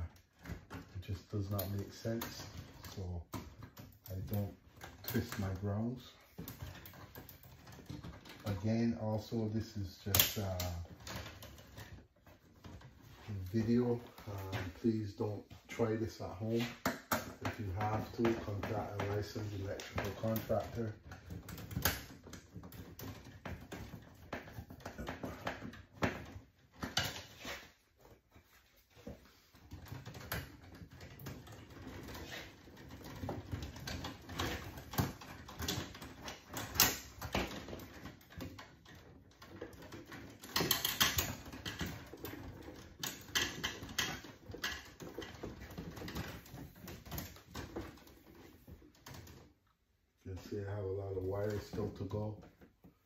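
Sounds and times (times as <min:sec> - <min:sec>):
wires clicking against metal box: 0:00.0 - 0:49.6.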